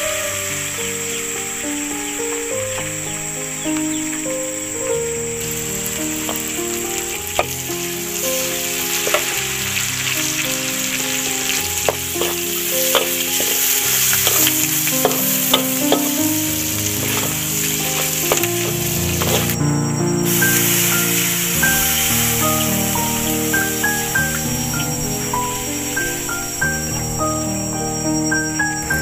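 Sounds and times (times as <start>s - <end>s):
food sizzling in a pan: 5.4s - 19.6s, 20.3s - 27.7s
utensil scraping a pan: 17.0s - 19.6s.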